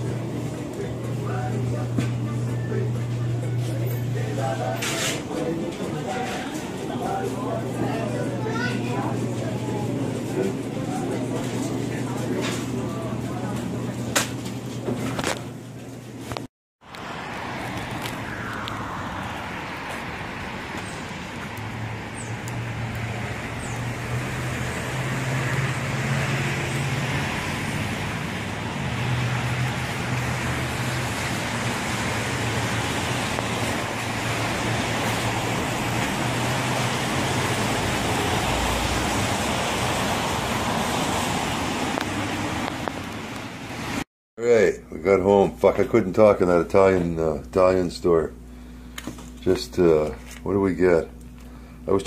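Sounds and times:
street traffic noise: 0:00.0 - 0:44.1, 0:45.2 - 0:52.0
low hum: 0:16.9 - 0:37.0.

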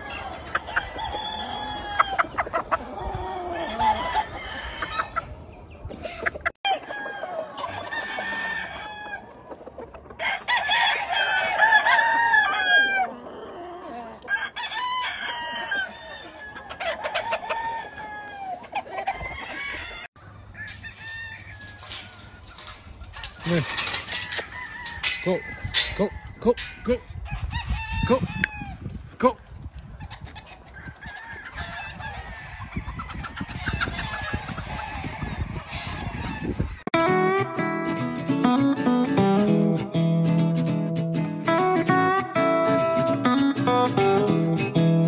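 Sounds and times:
roosters crowing: 0:00.0 - 0:05.4, 0:06.0 - 0:09.4, 0:10.1 - 0:28.9, 0:30.2 - 0:36.9
hens clucking: 0:00.0 - 0:28.7, 0:29.8 - 0:37.4.

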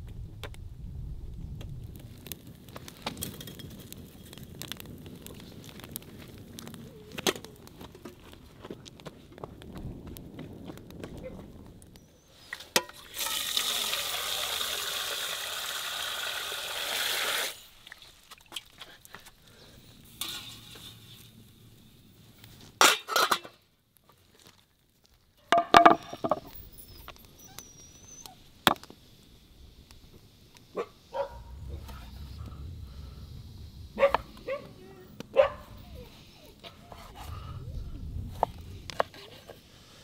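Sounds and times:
loud steady hiss: 0:12.1 - 0:17.8, 0:28.3 - 0:40.0.

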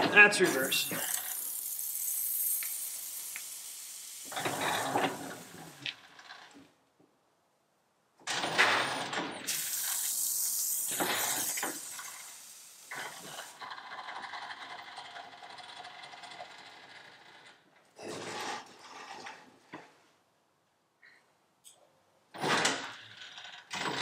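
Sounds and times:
loud hiss: 0:00.0 - 0:05.9, 0:09.5 - 0:13.6.

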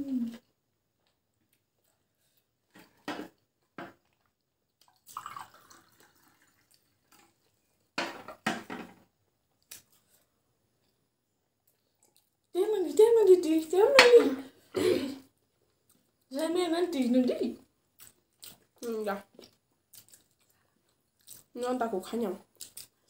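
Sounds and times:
water poured into a glass: 0:04.9 - 0:07.3.

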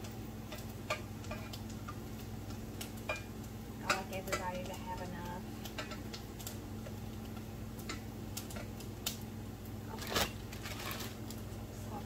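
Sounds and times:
steady low hum: 0:00.0 - 0:12.0
plastic bag crinkling: 0:09.9 - 0:11.4.

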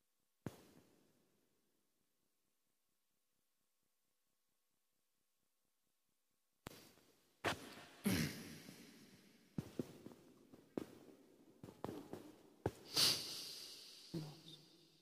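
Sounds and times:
person sniffing and coughing: 0:08.0 - 0:08.7, 0:12.9 - 0:14.2.

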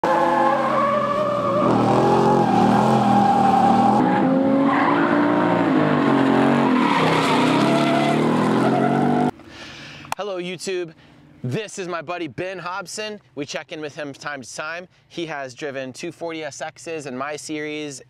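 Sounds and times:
car engine at high revs: 0:00.0 - 0:09.4.

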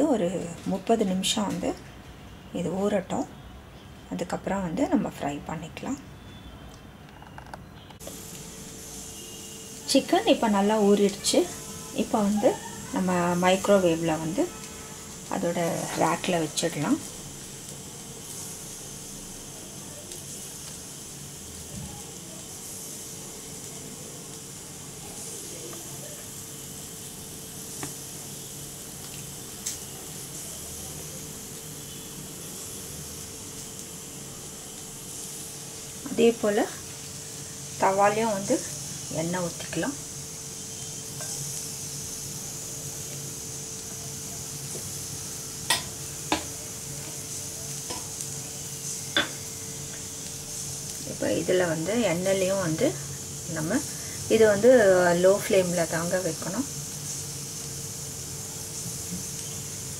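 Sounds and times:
steady hiss: 0:00.0 - 0:59.9
sharp clicks against a pan: 0:45.7 - 0:46.6.

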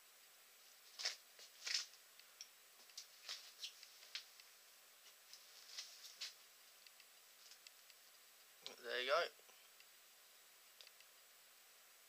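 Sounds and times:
faint small clicks: 0:10.8 - 0:11.1.

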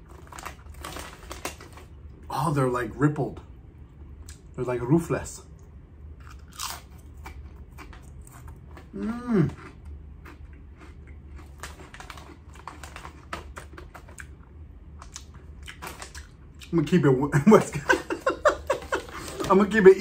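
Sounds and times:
potato chip crunching: 0:00.0 - 0:02.4, 0:06.2 - 0:14.4, 0:15.0 - 0:17.0
person humming: 0:08.9 - 0:09.6.

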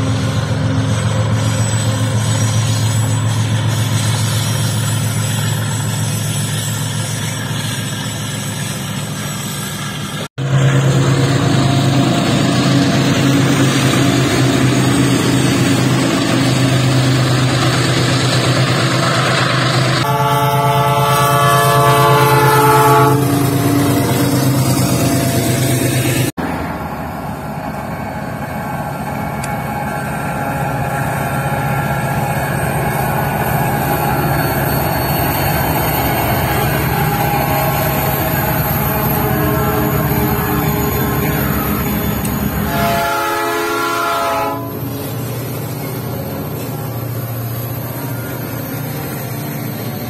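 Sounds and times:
locomotive engine drone: 0:00.0 - 0:50.0
locomotive air horn: 0:20.0 - 0:25.9, 0:35.8 - 0:45.0.

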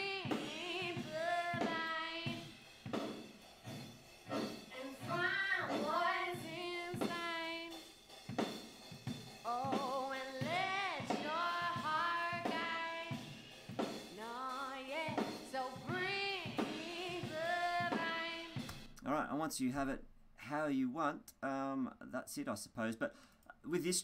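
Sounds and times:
female vocal with reverb: 0:00.0 - 0:02.4, 0:04.7 - 0:07.7, 0:09.5 - 0:13.2, 0:14.1 - 0:18.6
drum kit: 0:00.0 - 0:19.2.

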